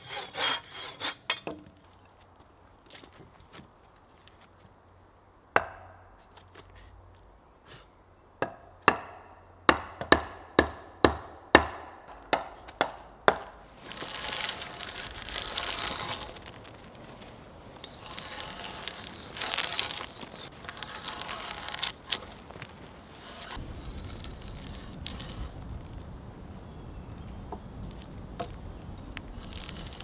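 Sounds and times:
sharp wooden knocks: 8.4 - 13.6
drawknife scraping bark: 13.8 - 16.7, 17.8 - 25.5.

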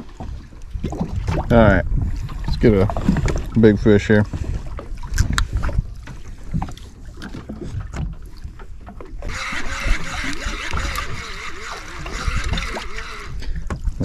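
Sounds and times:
reel clicking: 9.2 - 13.7
fishing reel whirring hiss: 9.3 - 13.5.

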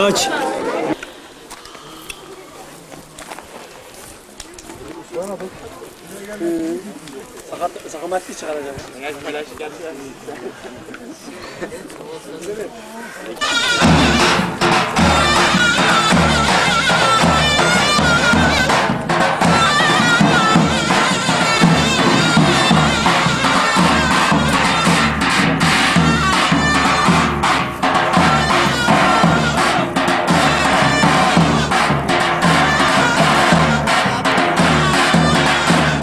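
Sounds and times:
double-headed drum beating: 13.4 - 36.0
shrill reed-pipe melody: 13.4 - 36.0.

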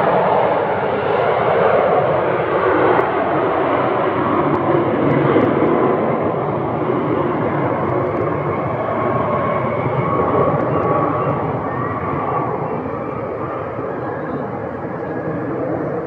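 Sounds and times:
jet engines roaring: 0.0 - 16.0
thin jet whine: 5.4 - 16.0.

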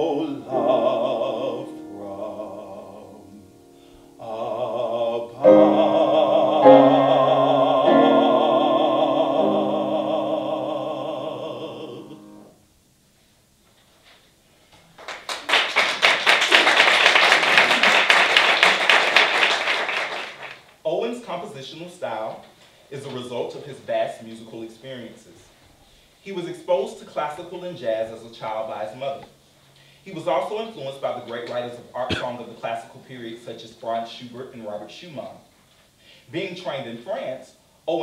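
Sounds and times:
baritone singing: 0.0 - 12.5
grand piano: 0.0 - 12.7
audience applauding: 14.9 - 20.6.

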